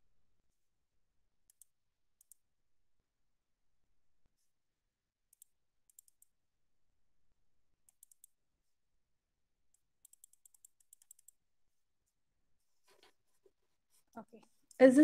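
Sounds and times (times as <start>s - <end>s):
computer keyboard clicking: 5.4s - 6.3s, 7.9s - 8.3s, 10.0s - 11.4s.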